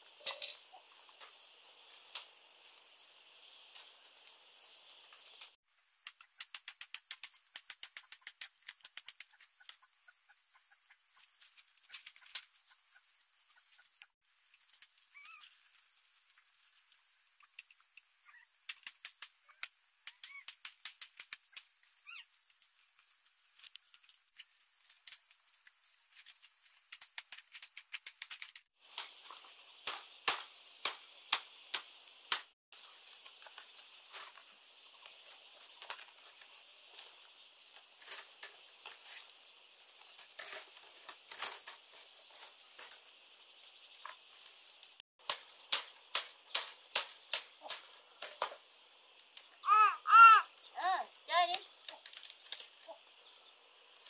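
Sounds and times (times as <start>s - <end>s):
bamboo strips clicking: 5.1s - 9.9s, 11.2s - 12.8s, 13.6s - 28.7s, 29.8s - 32.5s, 44.4s - 48.4s, 51.5s - 53.0s.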